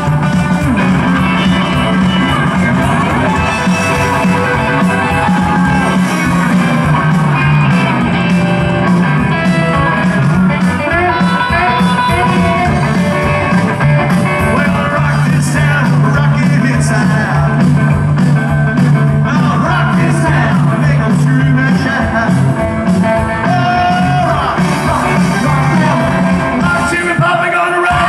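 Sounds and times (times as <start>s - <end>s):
steady drum beat: 0.0s - 28.0s
twangy electric guitar: 0.0s - 28.0s
person singing lead vocal: 10.6s - 28.0s.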